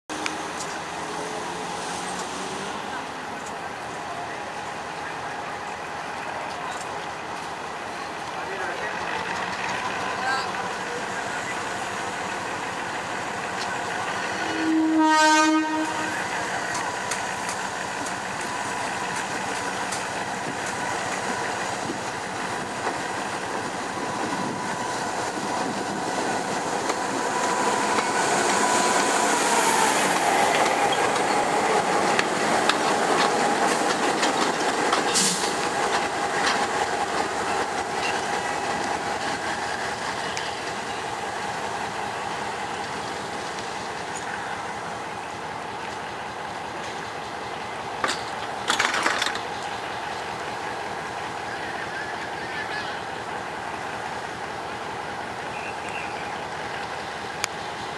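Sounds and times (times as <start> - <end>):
locomotive engine running: 0.1 - 57.9
locomotive horn: 14.3 - 16.3.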